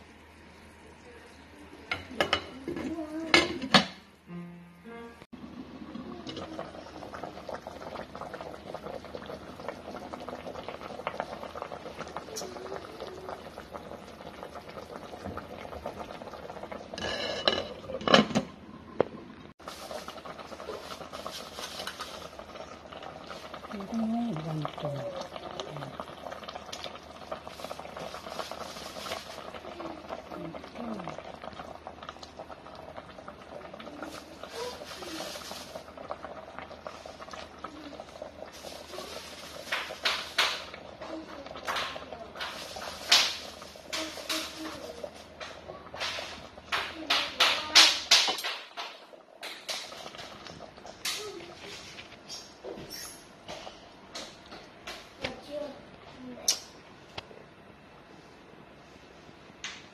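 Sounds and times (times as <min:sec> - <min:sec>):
broth bubbling in pot: 0:00.0 - 0:04.2, 0:05.2 - 0:59.9
glass lid clanking on pot: 0:17.0 - 0:18.5.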